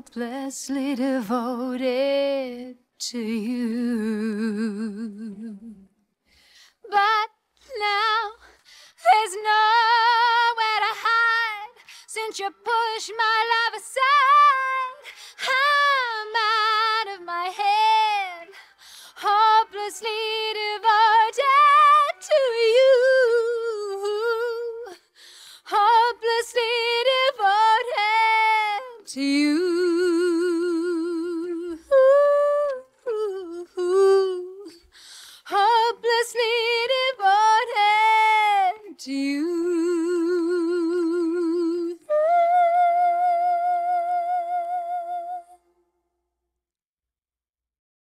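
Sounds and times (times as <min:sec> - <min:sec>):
woman singing with vibrato: 0:00.0 - 0:05.9, 0:06.8 - 0:45.7.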